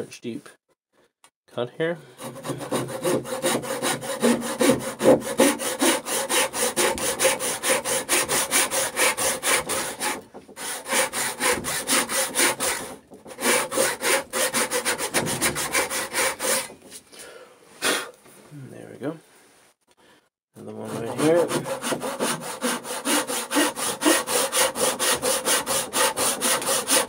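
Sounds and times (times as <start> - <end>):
backsaw cutting wood: 2.2 - 16.9, 20.6 - 27.0.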